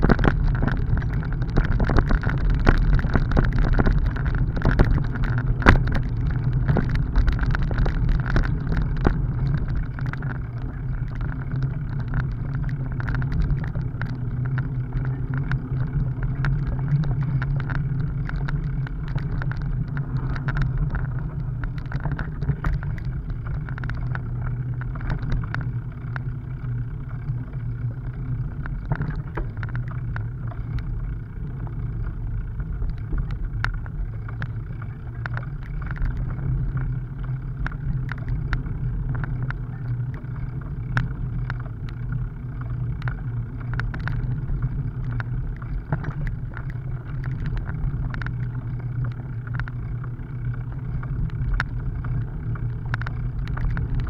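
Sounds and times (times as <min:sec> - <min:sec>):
bicycle rattling and clicking: 0:00.0 - 0:54.0
tyres rumbling on rough asphalt: 0:00.0 - 0:54.0.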